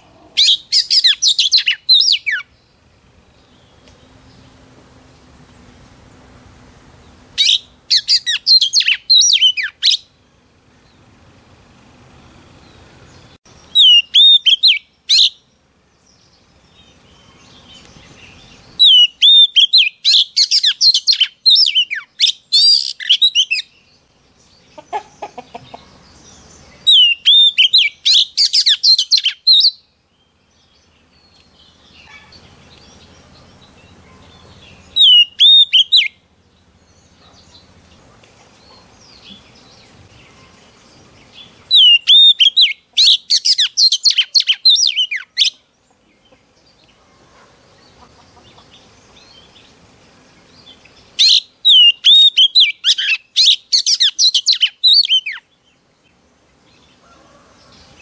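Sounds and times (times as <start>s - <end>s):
bird singing whistled phrases: 0.4s - 2.5s, 7.4s - 10.1s, 13.7s - 15.4s, 18.8s - 23.7s, 26.9s - 29.8s, 35.0s - 36.2s, 41.7s - 45.6s, 51.2s - 55.4s.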